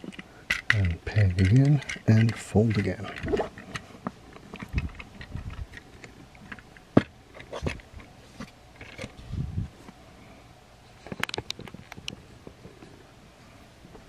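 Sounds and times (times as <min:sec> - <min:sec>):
plastic toy parts clicking: 0:00.0 - 0:03.8
plastic parts rubbing: 0:00.0 - 0:09.3.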